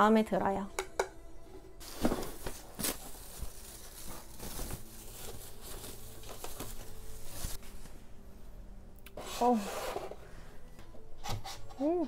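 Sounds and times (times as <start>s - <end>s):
foam wrap rustling: 1.8s - 7.8s.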